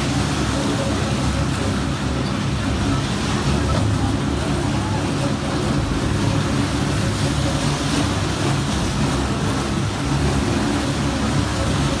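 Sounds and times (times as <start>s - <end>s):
water churning and spraying: 0.0s - 12.0s.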